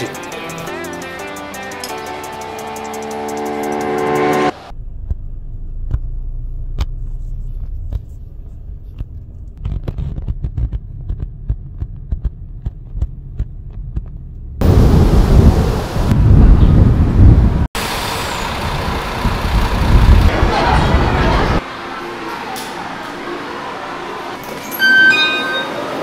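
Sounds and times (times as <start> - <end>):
wind on microphone: 14.6 - 17.7.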